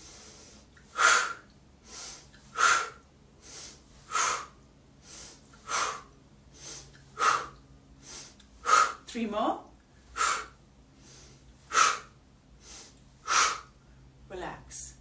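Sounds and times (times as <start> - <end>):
inhale through nose: 0.0 - 9.0, 10.1 - 13.7.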